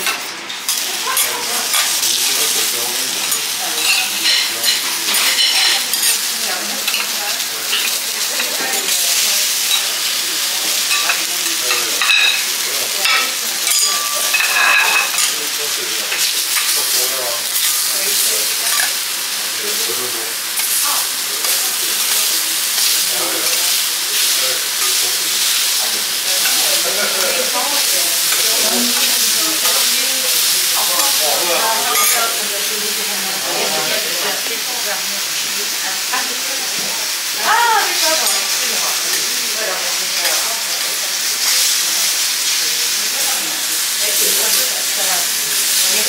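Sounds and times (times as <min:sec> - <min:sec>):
fruit sizzling on a griddle: 0:00.0 - 0:46.0
metal spatula clinks: 0:13.6 - 0:15.3.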